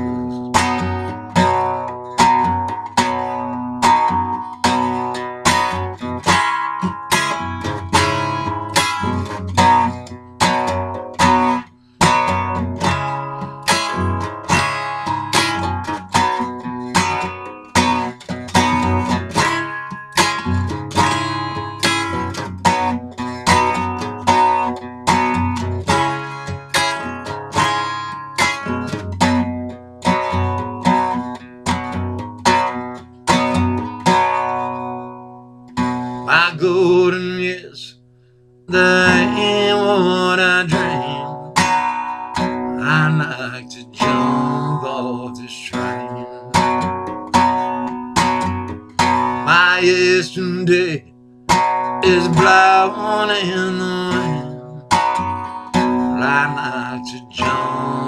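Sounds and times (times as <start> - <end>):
acoustic guitar strumming: 0.0 - 58.0.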